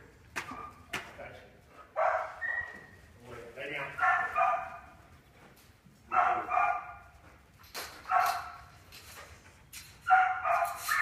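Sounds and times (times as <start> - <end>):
dog barking: 2.0 - 2.8, 4.0 - 4.9, 6.1 - 7.0, 8.0 - 8.6, 10.1 - 11.0.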